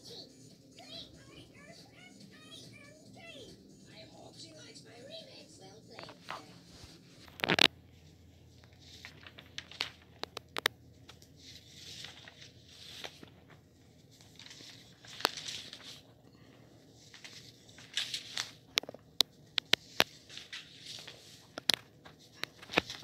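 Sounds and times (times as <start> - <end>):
notebook paper rustling: 6.0 - 23.0.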